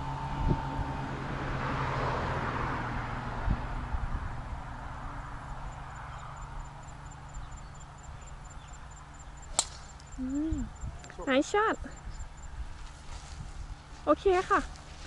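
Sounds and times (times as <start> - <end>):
faint outdoor background: 0.0 - 15.0
golf club striking ball: 9.5 - 10.1.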